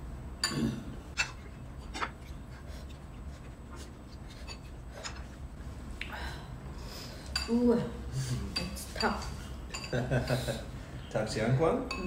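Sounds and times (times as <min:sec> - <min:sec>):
metal spoon clinking on ceramic bowl: 0:08.6 - 0:10.1.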